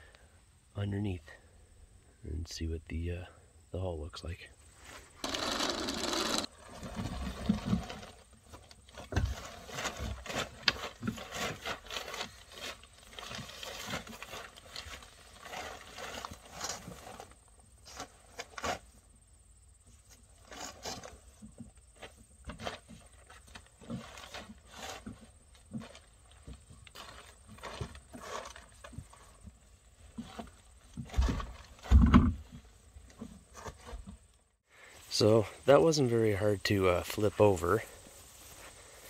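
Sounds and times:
plastic boat knocking and scraping: 20.8s - 34.2s.

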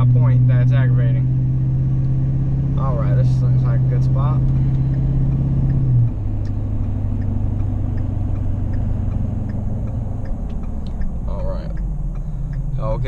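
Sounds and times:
truck engine drone: 0.0s - 13.0s
faint light ticks: 7.2s - 12.7s.

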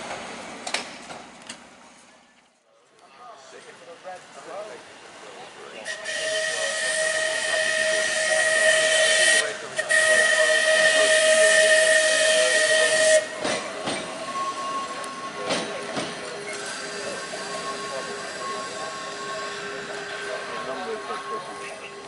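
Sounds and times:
tram running over rails: 0.0s - 22.0s
tram whistle blasts: 5.8s - 22.0s.

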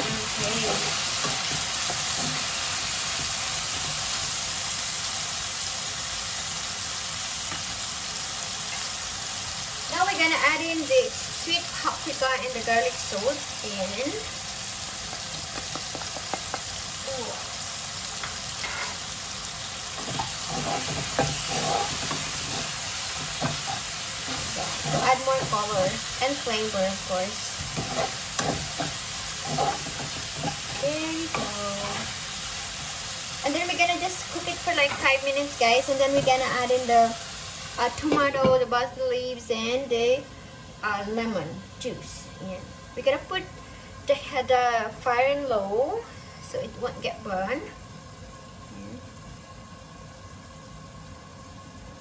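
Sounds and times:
spatula scraping and tapping pan: 0.0s - 2.6s, 18.2s - 19.0s, 20.0s - 26.0s, 27.6s - 32.1s
chicken sizzling in oil: 0.0s - 52.0s.

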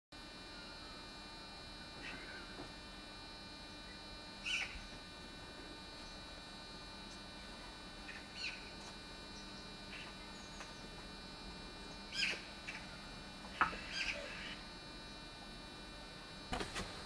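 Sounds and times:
small birds chirping: 8.1s - 11.0s, 11.8s - 12.9s, 13.6s - 15.2s.

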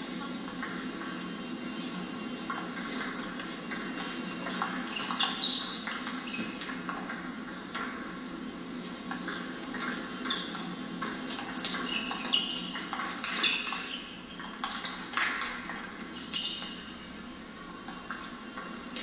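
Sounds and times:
shoes squeaking on floor: 3.4s - 6.7s, 10.2s - 15.4s, 16.0s - 16.9s.

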